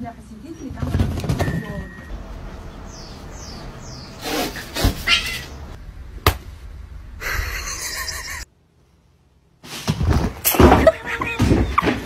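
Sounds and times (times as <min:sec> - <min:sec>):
kitten squeaks: 0:04.3 - 0:05.5.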